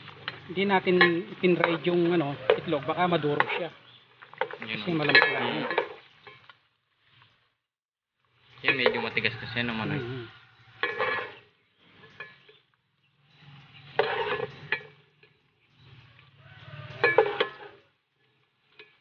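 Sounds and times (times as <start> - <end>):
hot oil sizzling: 0.0 - 19.0
metal strainer clinking on pan: 16.8 - 17.8.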